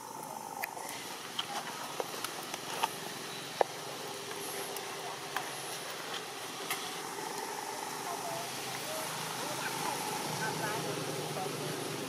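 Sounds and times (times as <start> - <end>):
outdoor background hiss: 0.0 - 12.0.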